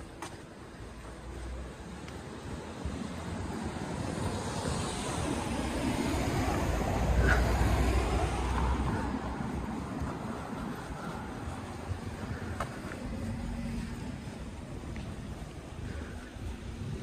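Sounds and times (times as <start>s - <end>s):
car driving past: 2.8s - 15.4s.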